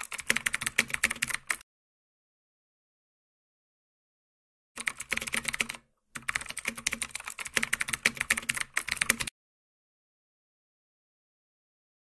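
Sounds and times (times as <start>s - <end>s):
keyboard typing clicks: 0.0s - 1.6s, 4.8s - 9.3s.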